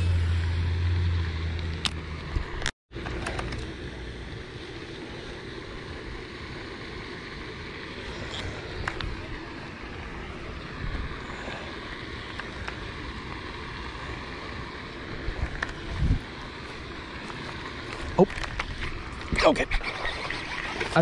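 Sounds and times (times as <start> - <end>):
wind on microphone: 15.2 - 16.4.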